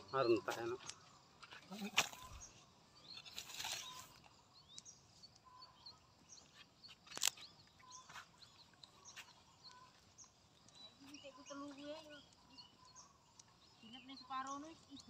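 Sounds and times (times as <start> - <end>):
small birds chirping: 0.0 - 15.0
rake scraping soil: 1.4 - 4.2.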